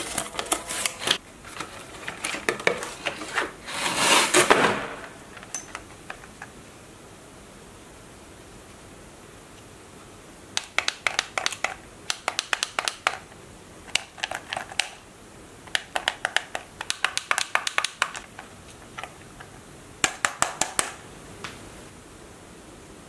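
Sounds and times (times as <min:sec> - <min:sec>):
plastic buttons clicking: 0:10.6 - 0:13.2, 0:15.7 - 0:18.2.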